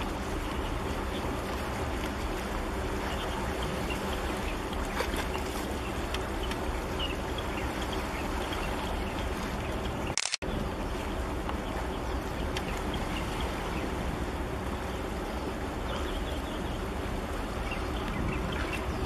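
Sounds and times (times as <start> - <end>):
water sloshing among blocks: 0.0 - 10.0
ship engine low rumble: 0.0 - 19.0.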